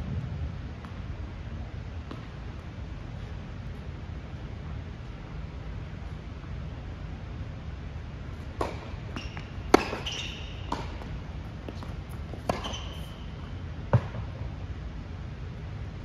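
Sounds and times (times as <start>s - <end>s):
tennis balls struck by racquets: 2.0s - 2.8s, 8.4s - 13.3s, 13.9s - 14.4s
tennis balls bouncing on court: 2.0s - 2.9s, 8.4s - 14.5s
brief high squeaks: 9.2s - 10.7s, 12.5s - 13.3s.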